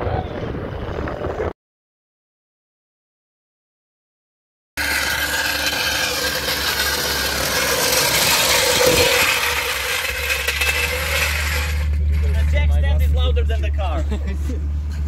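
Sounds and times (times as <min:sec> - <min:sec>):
floor jack scraping on concrete: 0:04.8 - 0:13.2.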